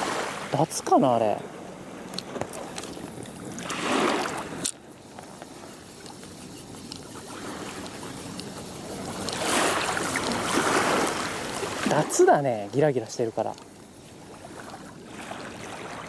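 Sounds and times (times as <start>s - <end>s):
waves lapping against wall: 0.0s - 16.0s.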